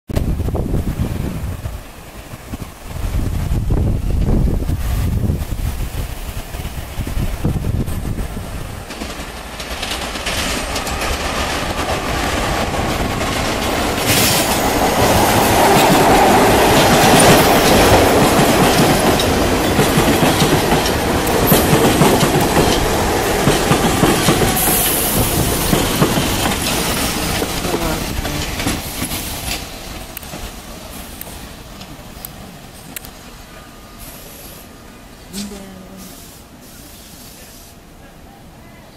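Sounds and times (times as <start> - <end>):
train wheels clattering over rails: 5.4 - 33.0.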